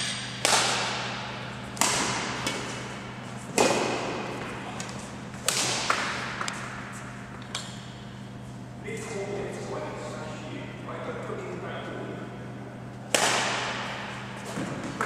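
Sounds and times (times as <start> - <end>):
racket hitting shuttlecock: 0.0 - 7.0, 13.1 - 15.0.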